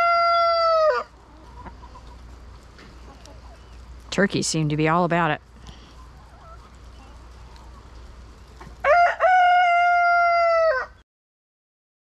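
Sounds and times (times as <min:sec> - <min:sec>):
rooster crowing: 0:00.0 - 0:01.2, 0:08.8 - 0:11.0.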